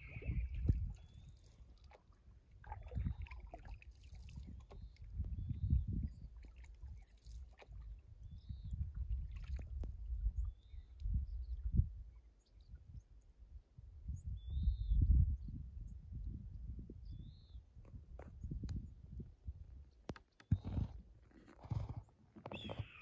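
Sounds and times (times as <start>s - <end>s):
wind buffeting microphone: 0.0s - 1.3s, 2.7s - 3.5s, 4.3s - 6.4s, 7.7s - 13.0s, 13.8s - 19.8s
paddle strokes: 0.0s - 5.4s, 6.3s - 7.9s
water splashing against hull: 0.0s - 8.2s, 8.8s - 10.3s.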